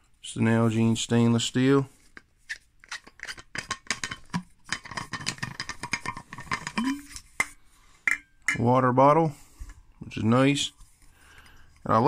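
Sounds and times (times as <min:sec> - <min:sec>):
metal bottle clicks and clinks: 0:03.2 - 0:07.5.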